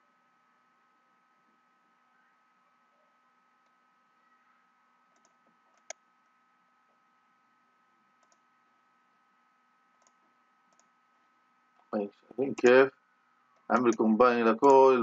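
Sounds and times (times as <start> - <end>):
faint computer mouse clicks: 5.1 - 6.0, 8.2 - 8.4, 10.0 - 10.9.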